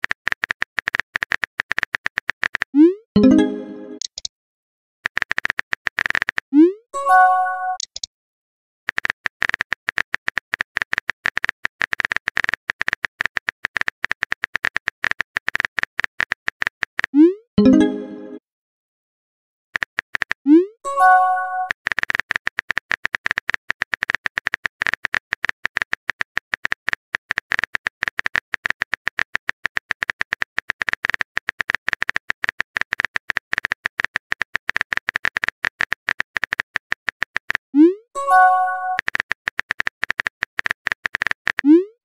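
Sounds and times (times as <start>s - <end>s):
keyboard typing clicks: 0.0s - 4.3s, 7.0s - 8.1s, 21.0s - 41.9s
message sent pop and chime: 3.2s - 4.1s, 7.0s - 7.9s, 17.6s - 18.4s, 20.9s - 21.7s, 38.2s - 39.0s.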